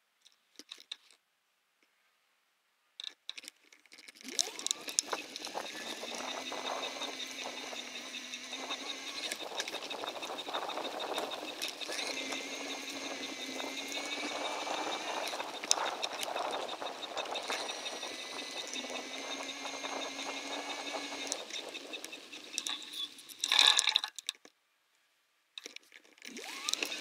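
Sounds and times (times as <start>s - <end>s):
bicycle tyres rolling on trail: 4.2s - 23.4s
steady whine: 4.3s - 24.0s, 26.3s - 27.0s.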